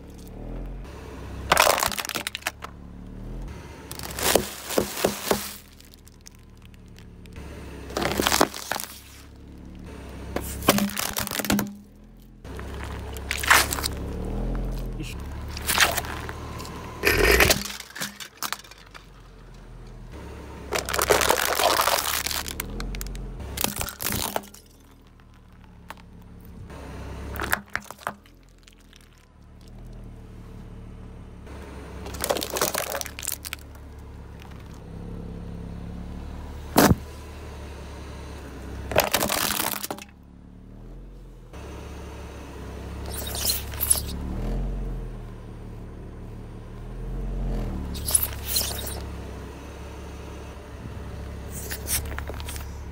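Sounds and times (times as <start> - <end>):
car tyre crushing objects: 0.0 - 35.9, 36.6 - 37.3, 38.6 - 41.6, 42.9 - 52.9
car engine running low: 0.0 - 52.9
sharp crack: 12.6 - 14.0, 14.8 - 16.4.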